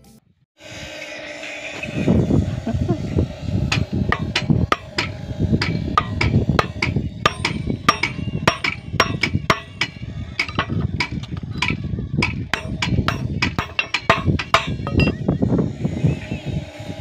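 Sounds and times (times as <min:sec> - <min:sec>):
hammer striking nail: 0:03.7 - 0:15.2
metallic ring: 0:03.7 - 0:15.2.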